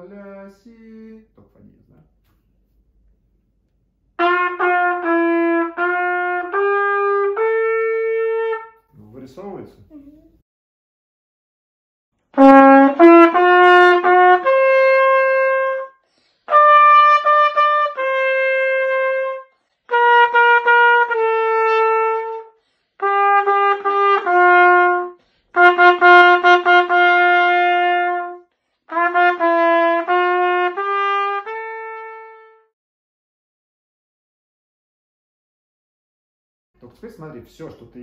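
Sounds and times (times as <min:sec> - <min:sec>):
solo trumpet melody: 0:04.2 - 0:08.9, 0:12.3 - 0:32.7.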